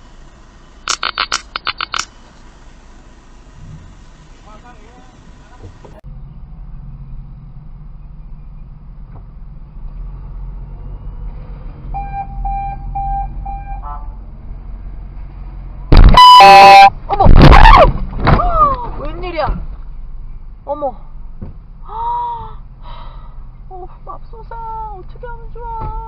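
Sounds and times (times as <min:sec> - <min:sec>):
car engine idling: 0:00.0 - 0:09.9
car horn blast: 0:12.0 - 0:14.2, 0:15.9 - 0:17.0
short car horn beeps: 0:12.0 - 0:14.2, 0:16.0 - 0:17.0.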